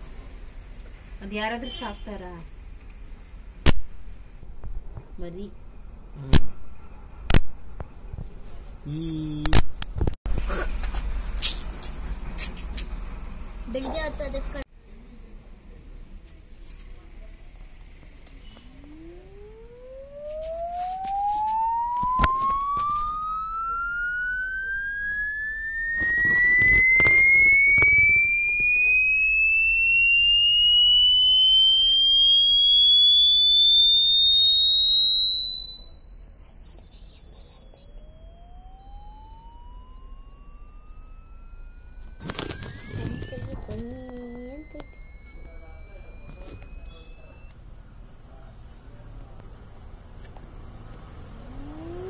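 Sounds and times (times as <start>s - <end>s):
rising test tone sweep: 18.7s - 47.6s, 50.9s - 52.0s.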